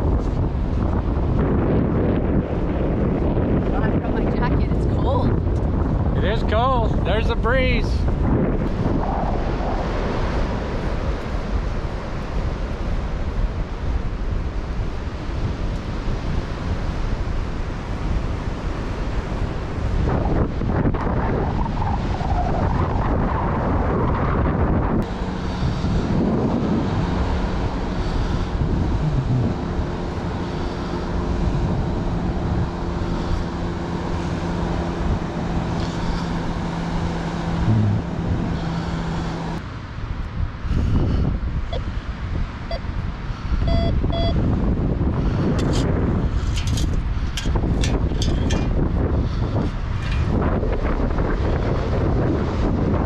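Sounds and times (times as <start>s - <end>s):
wind buffeting microphone: 0.0s - 53.0s
low hum: 22.8s - 42.0s
metal detector beeps: 43.6s - 44.4s.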